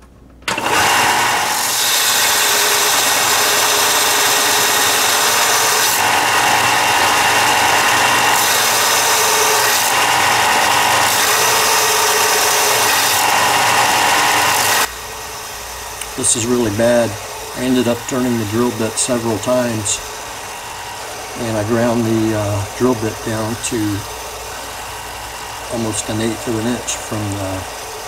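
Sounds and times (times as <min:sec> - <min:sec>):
belt sander grinding steel: 0:00.5 - 0:28.0.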